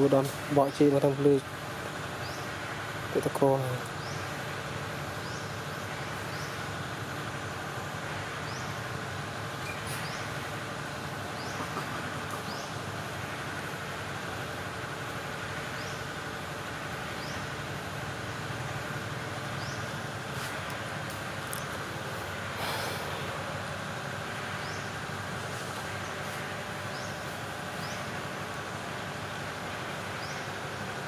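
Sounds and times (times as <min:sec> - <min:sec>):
forest background hiss: 0:00.0 - 0:31.0
faint high rising chirp: 0:09.6 - 0:10.3.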